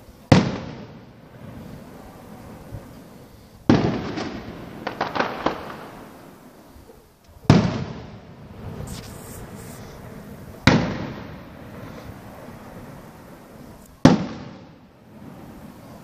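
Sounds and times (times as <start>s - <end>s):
small firework pops: 0.3s - 1.1s, 3.6s - 6.2s, 7.2s - 12.3s, 13.7s - 14.9s
firework shells bursting: 3.7s - 6.2s, 7.4s - 16.0s.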